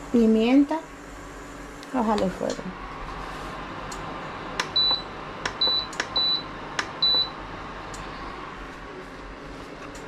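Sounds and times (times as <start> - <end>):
cooktop touch panel beeping: 4.6 - 7.4.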